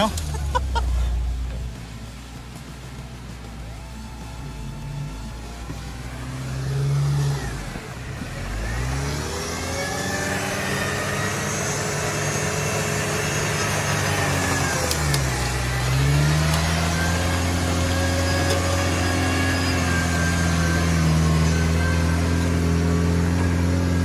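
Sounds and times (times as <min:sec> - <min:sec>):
tyres splashing: 0:00.0 - 0:24.0
engine revving hard: 0:04.8 - 0:24.0.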